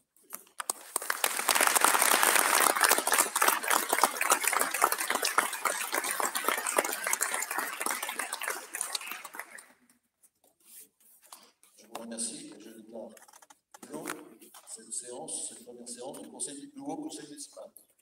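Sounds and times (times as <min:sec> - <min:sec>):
people clapping: 0:00.4 - 0:09.9.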